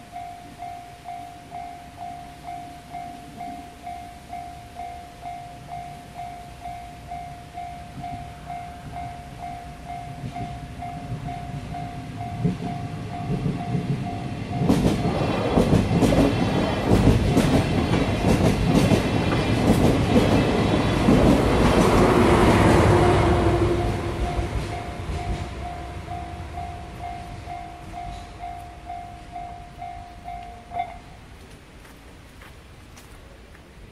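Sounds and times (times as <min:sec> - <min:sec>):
level-crossing warning bell: 0:00.0 - 0:31.5
train wheels clattering over rail joints: 0:12.4 - 0:23.0.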